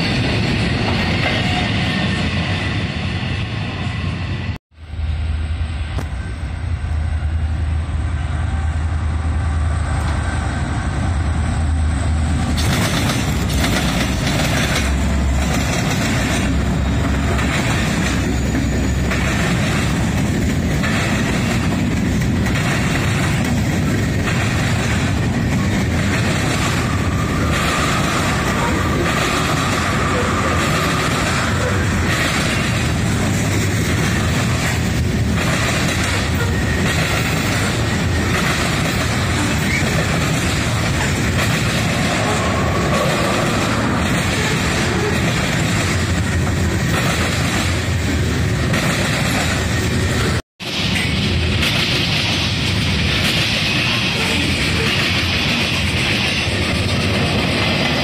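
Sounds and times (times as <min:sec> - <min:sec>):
diesel locomotive rumble: 0:00.0 - 0:58.0
train wheels clattering over rail joints: 0:12.3 - 0:58.0.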